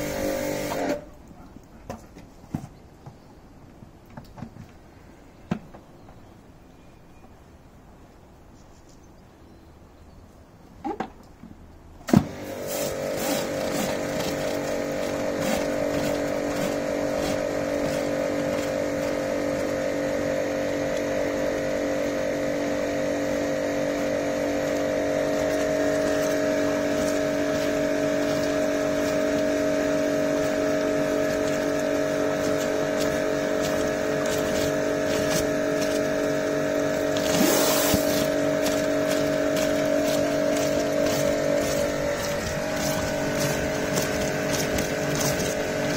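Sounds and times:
pressure washer motor humming: 0:00.0 - 0:01.0, 0:12.1 - 0:45.9
water spray hissing on paving: 0:25.4 - 0:45.9.

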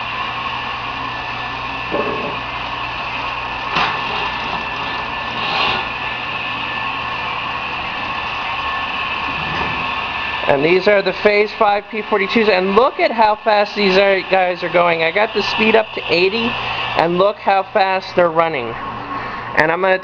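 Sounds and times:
model trains whirring on track: 0:00.0 - 0:17.7.

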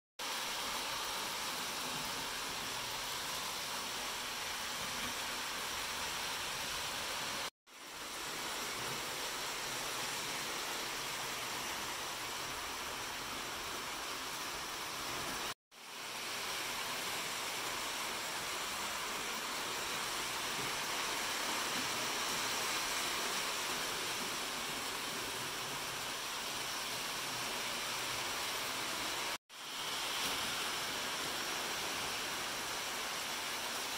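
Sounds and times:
steady hiss of noise: 0:00.2 - 0:33.9.

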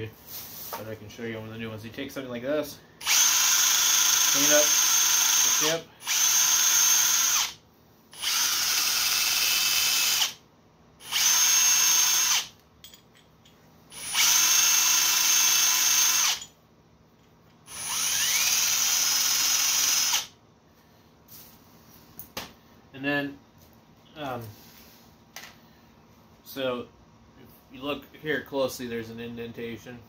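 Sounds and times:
drill spinning wire brush: 0:03.0 - 0:07.6, 0:08.2 - 0:10.4, 0:11.0 - 0:12.5, 0:13.9 - 0:16.5, 0:17.7 - 0:20.3.

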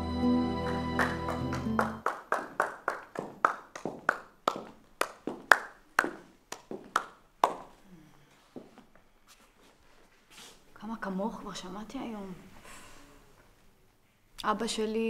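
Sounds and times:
person clapping slowly: 0:00.6 - 0:07.8.

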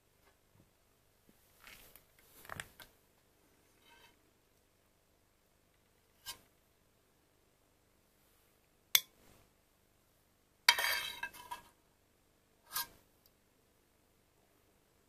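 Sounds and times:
clattering scrape: 0:10.7 - 0:11.7.

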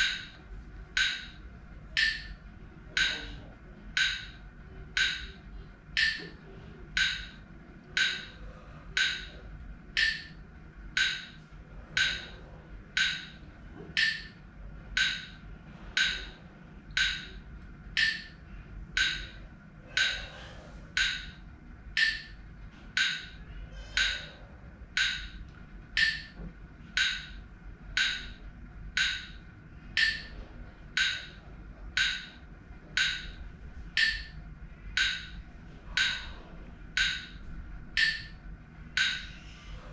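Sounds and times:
metronome ticking: 0:00.0 - 0:12.3, 0:12.9 - 0:15.4, 0:16.0 - 0:18.4, 0:19.0 - 0:20.3, 0:21.0 - 0:22.4, 0:23.0 - 0:23.4, 0:24.0 - 0:26.4, 0:27.0 - 0:29.4, 0:30.0 - 0:33.4, 0:34.0 - 0:39.4
faint breathing: 0:19.8 - 0:21.0, 0:39.2 - 0:39.9.

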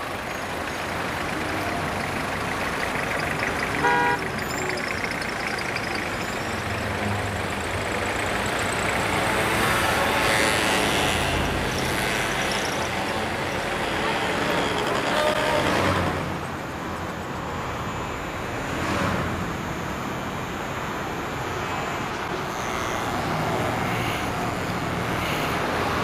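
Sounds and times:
cars passing: 0:00.0 - 0:26.0
short car horn toot: 0:03.8 - 0:04.2.

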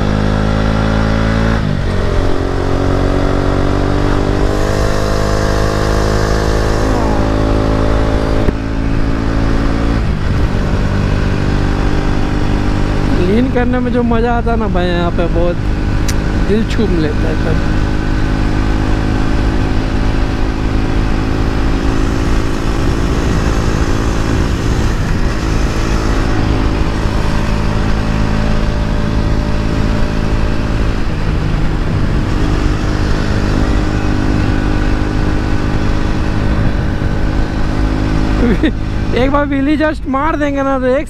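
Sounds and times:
motorcycle engine cruising: 0:00.0 - 0:41.0
wind rushing over microphone: 0:00.0 - 0:41.0.

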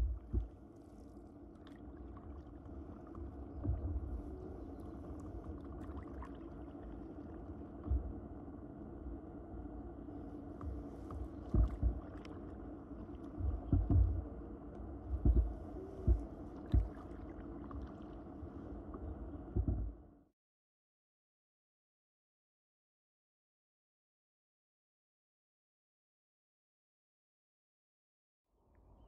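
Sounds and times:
dull low thumps: 0:00.0 - 0:00.6, 0:03.6 - 0:04.6, 0:07.8 - 0:08.2, 0:10.6 - 0:12.2, 0:13.4 - 0:14.4, 0:15.0 - 0:17.1, 0:19.5 - 0:20.0
water rumbling: 0:00.0 - 0:20.1.

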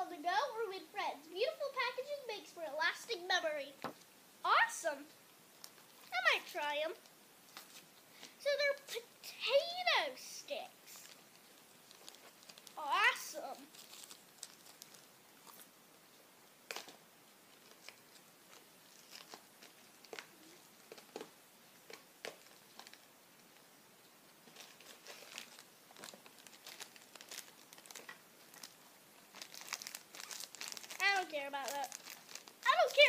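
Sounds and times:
foil bag crinkling: 0:10.9 - 0:15.7, 0:16.7 - 0:23.1, 0:24.4 - 0:33.0.

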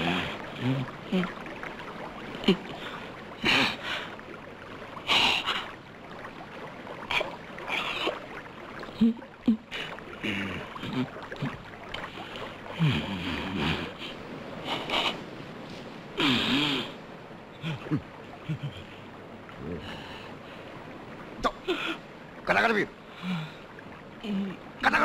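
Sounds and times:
wordless vocal sounds: 0:00.0 - 0:01.4
stream running over rocks: 0:00.0 - 0:25.0.

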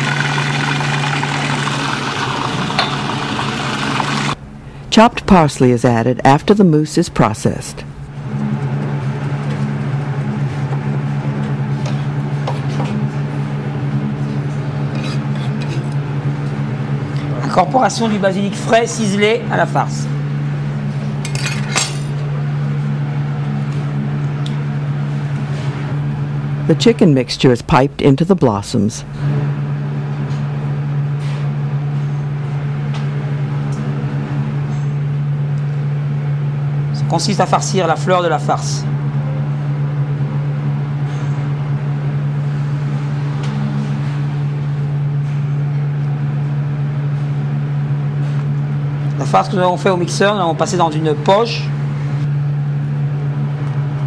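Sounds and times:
electric motor hum: 0:00.0 - 0:04.7
low machine hum: 0:00.0 - 0:54.0.

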